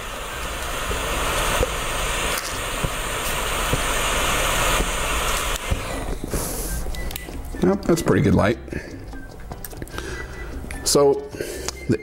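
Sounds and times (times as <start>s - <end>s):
torch lighter hissing: 0.0s - 7.3s.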